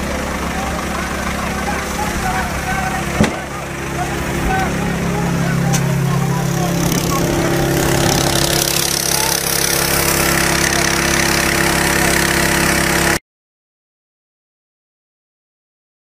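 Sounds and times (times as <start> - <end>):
engine running: 0.0 - 13.2.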